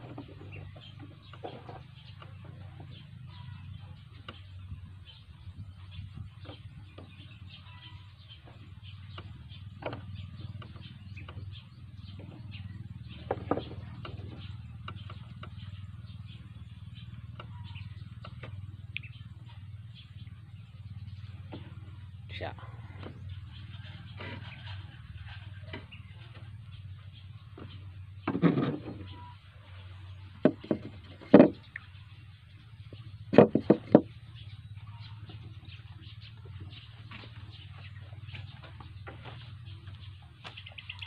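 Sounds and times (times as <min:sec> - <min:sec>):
low background hum: 0:00.0 - 0:41.0.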